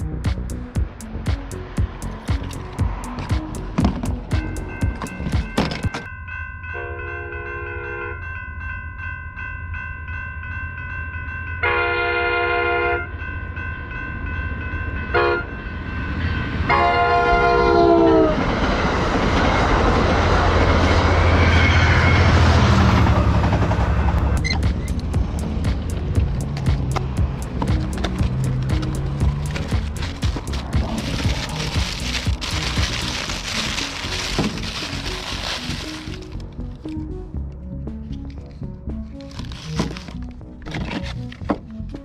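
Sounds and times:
railroad crossing bells: 0.0s - 39.2s
train passing rumble: 0.0s - 40.0s
train horn blasts: 11.6s - 13.1s, 15.1s - 15.6s, 16.7s - 18.4s.

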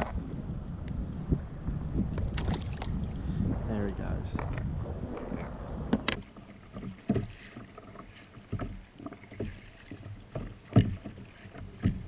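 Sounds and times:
water washing along hull: 0.0s - 12.0s
kayak paddle splashing: 2.0s - 3.5s, 4.4s - 12.0s.

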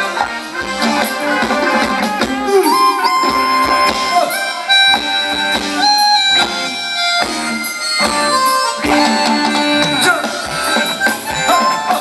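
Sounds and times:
lead instrument melody: 0.0s - 12.0s.

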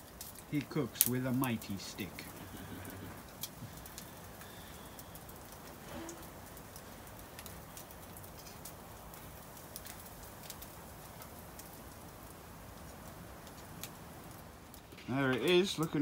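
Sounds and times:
bacon sizzling: 0.0s - 16.0s
wood fire crackling: 0.0s - 16.0s.

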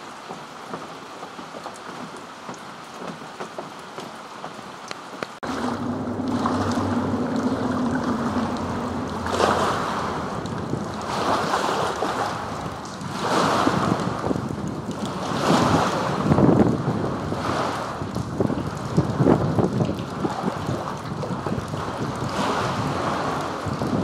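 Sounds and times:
light rain pattering: 0.0s - 24.0s
water lapping: 0.0s - 24.0s
low steady hum: 5.4s - 12.9s
wind buffeting microphone: 5.4s - 24.0s.

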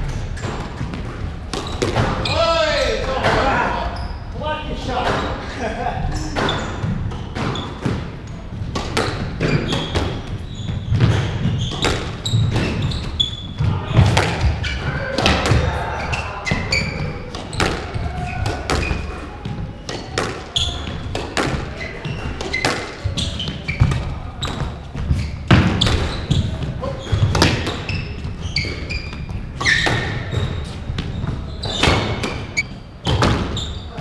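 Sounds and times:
shoes squeaking on wooden floor: 0.0s - 34.0s
squash ball knocks: 6.4s - 10.3s.

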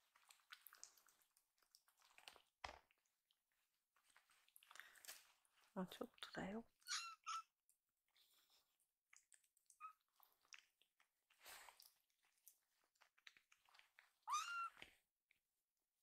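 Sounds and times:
kitten mewing: 6.9s - 7.5s.

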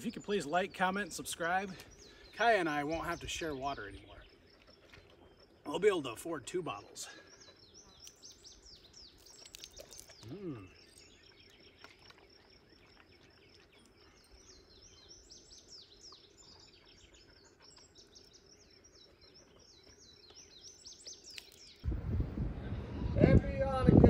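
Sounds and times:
small birds chirping: 0.0s - 23.8s
wind rushing: 21.8s - 24.0s.

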